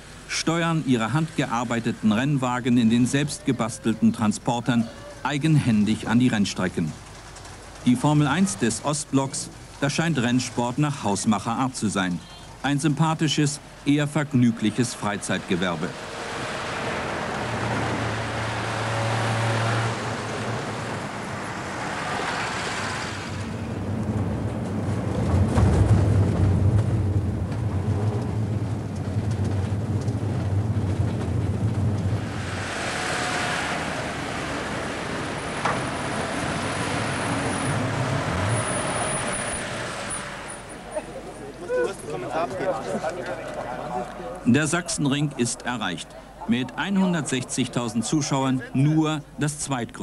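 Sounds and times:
passing traffic hiss: 0.0 - 24.1, 32.1 - 42.2.

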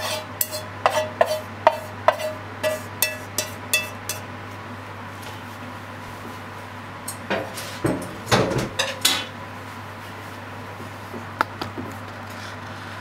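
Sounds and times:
frying pan and utensils clanking: 0.0 - 4.3, 7.3 - 9.4.

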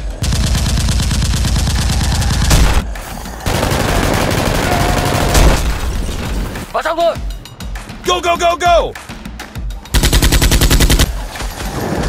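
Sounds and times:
machine-gun fire bursts: 0.0 - 5.6, 10.0 - 11.1.

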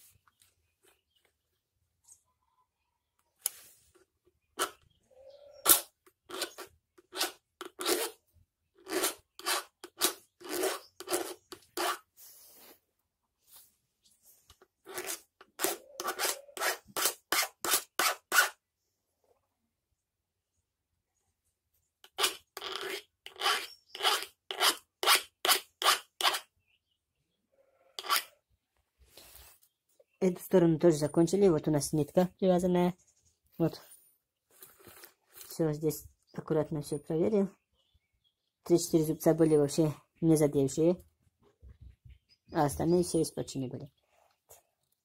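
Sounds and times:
file grating on chainsaw chain: 5.6 - 8.2, 8.8 - 12.1, 14.8 - 18.6, 22.0 - 26.5, 28.0 - 28.4.

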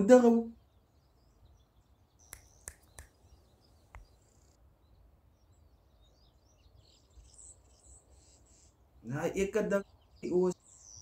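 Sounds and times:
faint bird chirping: 0.0 - 11.0.

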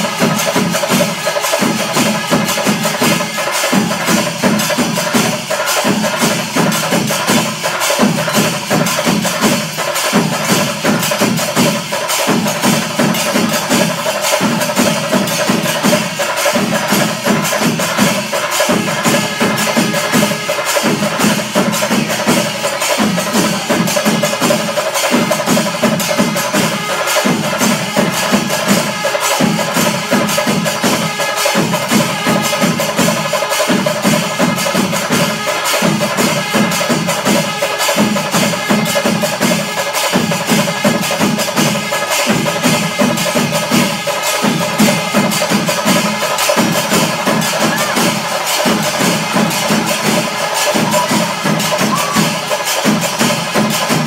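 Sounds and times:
clashing cymbals: 0.0 - 54.0
drums playing rhythm: 0.0 - 54.0
wind instruments holding tones: 11.3 - 54.0.

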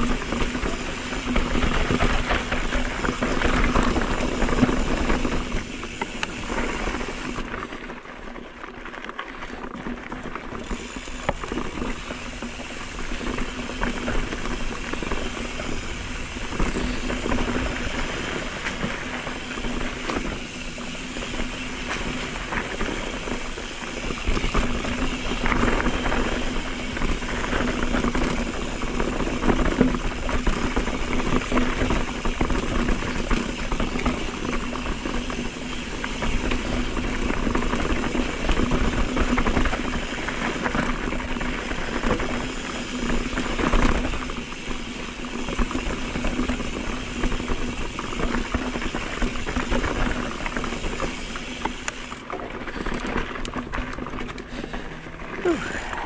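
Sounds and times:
bike rattling over bumps: 0.0 - 56.0
wind rushing over microphone: 54.9 - 56.0.

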